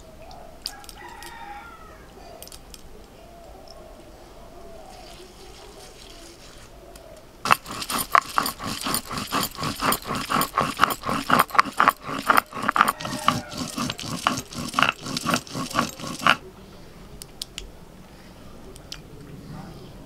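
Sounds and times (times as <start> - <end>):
stone grinding on stone slab: 7.4 - 16.4.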